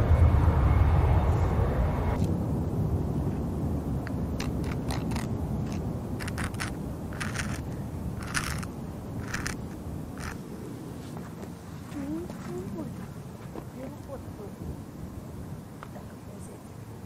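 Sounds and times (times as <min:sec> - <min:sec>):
jet airliner engine rumble: 0:00.0 - 0:17.0
short crunching noises: 0:04.1 - 0:10.4.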